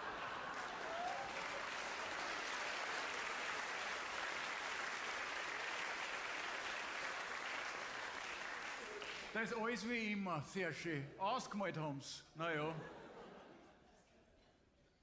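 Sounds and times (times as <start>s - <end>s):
audience applauding: 0.0s - 9.8s.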